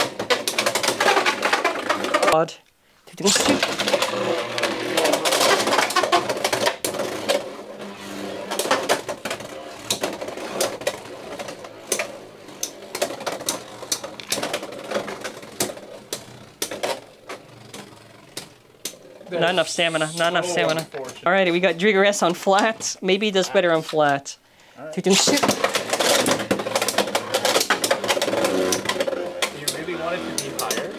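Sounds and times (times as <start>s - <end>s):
spinning tops rattling and clacking: 8.4s - 22.7s.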